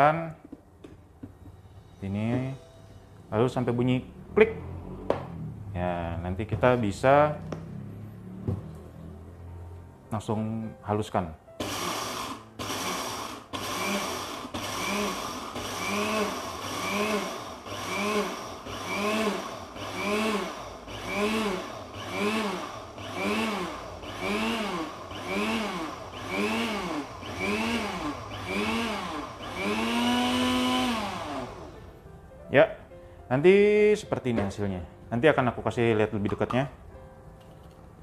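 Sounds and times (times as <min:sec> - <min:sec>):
blender motor pulsing: 0:11.6 - 0:31.8.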